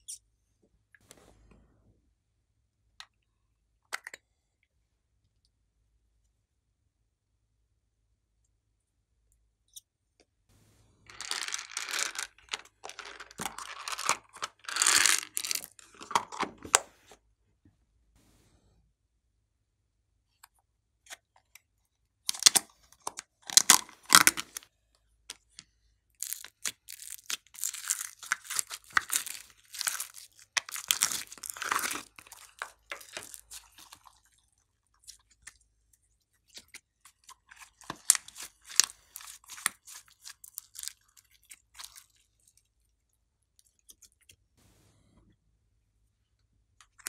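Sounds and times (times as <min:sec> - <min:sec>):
slime squeezed wet crackling: 0:26.2 - 0:35.5.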